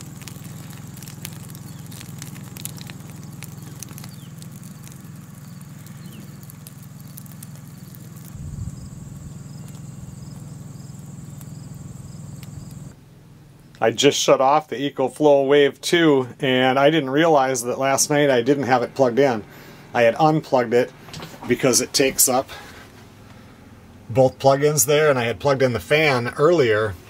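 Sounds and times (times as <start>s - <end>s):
wood fire crackling and popping: 0.0s - 13.0s
steady low hum: 0.0s - 27.0s.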